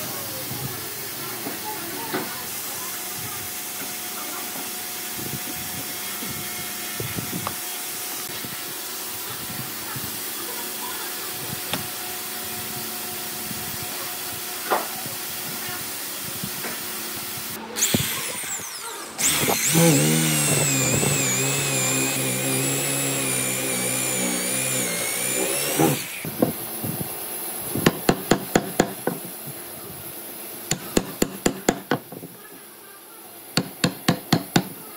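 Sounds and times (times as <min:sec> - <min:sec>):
tools tapping on wood: 0:33.6 - 0:34.8.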